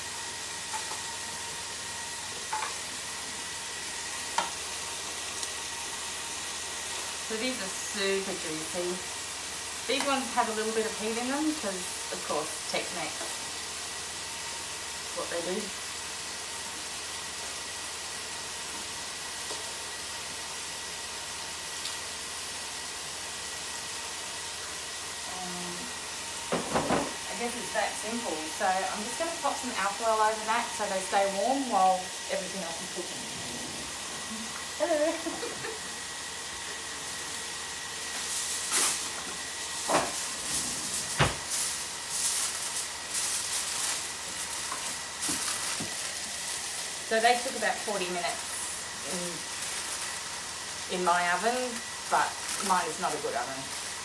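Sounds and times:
chicken sizzling in frying pan: 0:00.0 - 0:33.2, 0:33.8 - 0:54.0
aluminium foil crinkling: 0:38.0 - 0:54.0.

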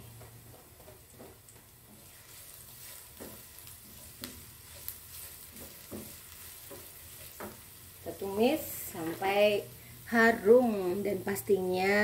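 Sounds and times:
shallots sizzling in oil: 0:00.0 - 0:12.0
spatula knocking against pan: 0:05.5 - 0:07.6.

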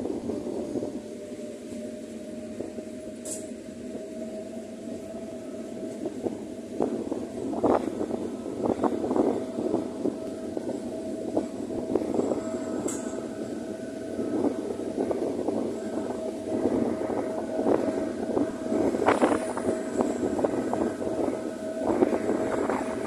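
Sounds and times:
train running hum and whine: 0:00.0 - 0:23.0.

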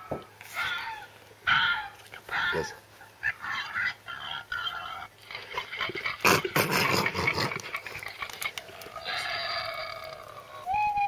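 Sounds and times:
recorded boar grunts from speaker: 0:05.9 - 0:07.8.

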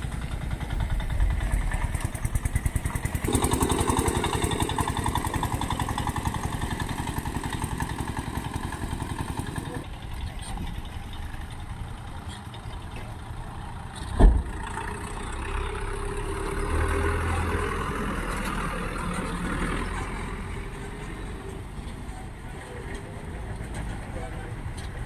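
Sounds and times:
vehicle engines running: 0:00.0 - 0:25.0
loud thump: 0:14.2 - 0:14.5.

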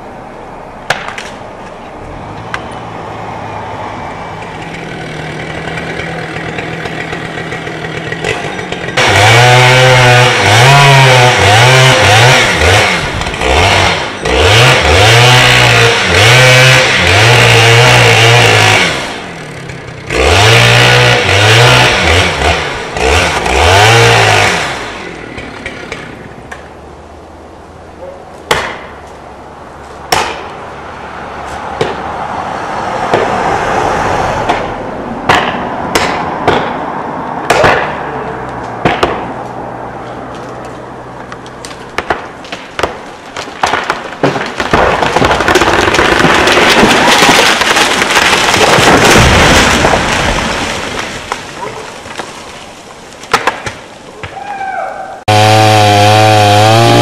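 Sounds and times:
chainsaw cutting tree trunk: 0:04.4 - 0:26.2, 0:42.0 - 0:52.5, 0:55.3 - 0:57.0
sharp knocks: 0:35.3 - 0:36.8.

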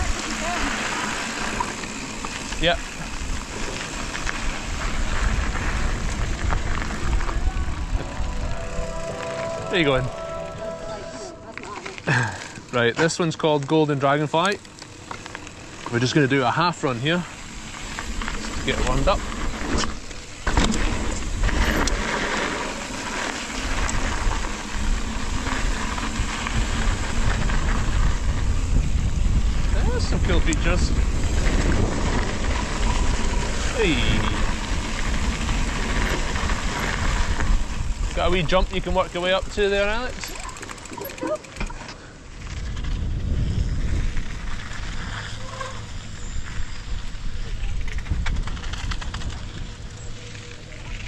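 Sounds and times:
bike tyres rolling over ground: 0:00.0 - 0:51.0
wind noise on microphone: 0:03.2 - 0:10.2, 0:23.6 - 0:39.0, 0:42.4 - 0:50.0.

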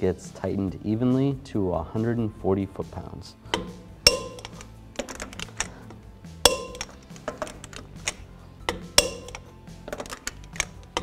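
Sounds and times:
socket clinking on lug nuts: 0:03.5 - 0:11.0
torque wrench clicking: 0:03.5 - 0:11.0.

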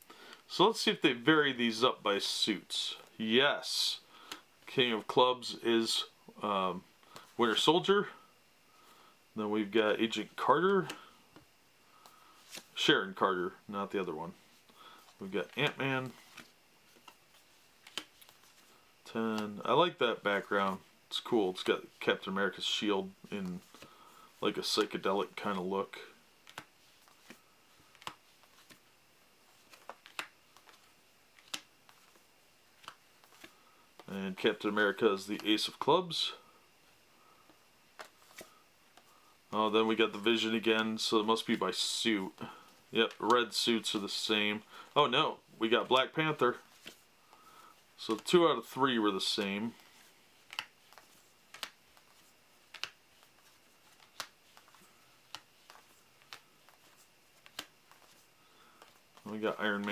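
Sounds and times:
playing cards flicking: 0:15.4 - 0:18.7, 0:26.4 - 0:28.9, 0:29.6 - 0:34.1, 0:49.2 - 0:59.9.

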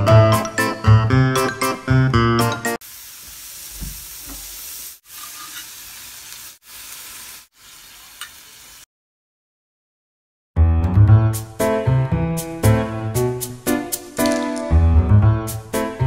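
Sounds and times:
pork sizzling in a grill pan: 0:02.8 - 0:08.9.

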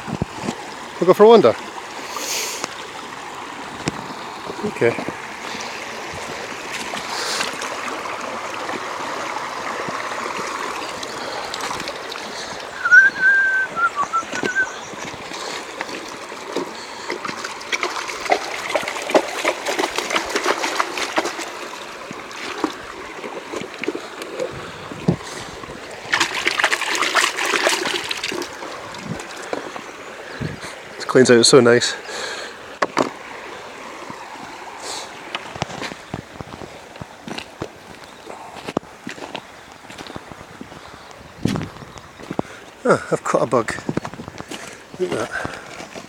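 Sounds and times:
river water over stones: 0:00.0 - 0:46.0
water sloshing in a pan: 0:01.6 - 0:30.0
water poured out of pan: 0:26.1 - 0:29.6.

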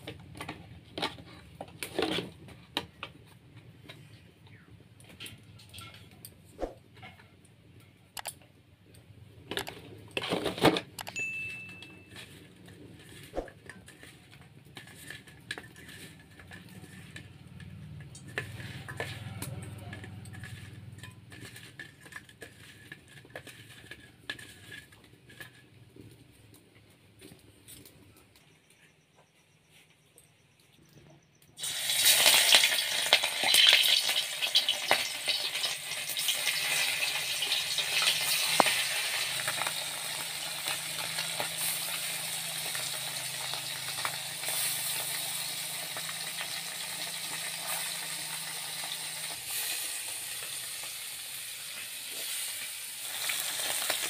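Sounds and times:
clatter and rustle: 0:05.0 - 0:07.9, 0:09.4 - 0:11.1, 0:11.7 - 0:28.4
short steady high tone: 0:11.2 - 0:12.2
steel kitchenware clicking: 0:13.0 - 0:25.6.

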